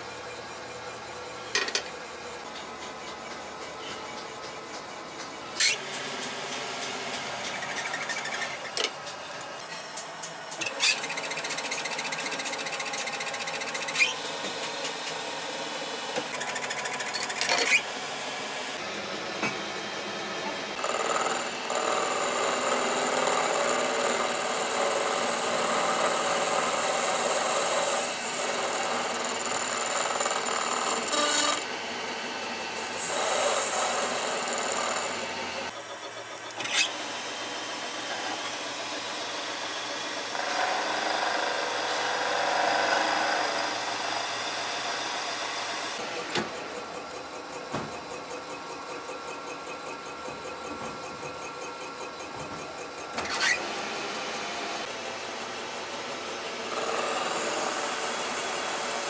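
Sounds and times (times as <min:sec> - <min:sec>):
metal cutting scraping: 0:00.0 - 0:15.2, 0:16.1 - 0:18.0, 0:32.8 - 0:37.0, 0:47.4 - 0:53.6.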